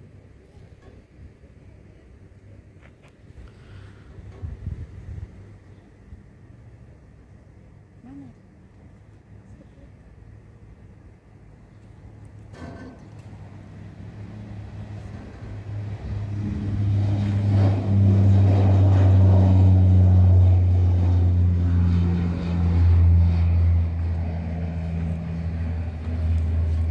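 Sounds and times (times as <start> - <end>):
turboprop aircraft propeller drone: 0.0 - 26.9.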